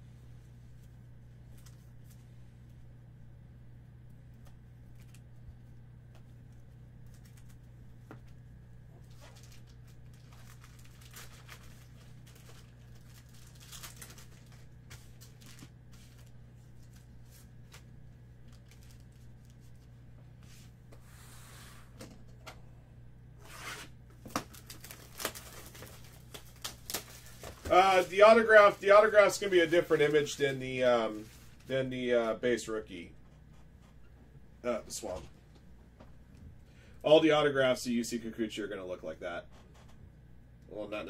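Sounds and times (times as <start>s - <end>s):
steady low hum: 0.0s - 41.0s
cards rustling: 9.1s - 19.9s, 23.5s - 31.7s.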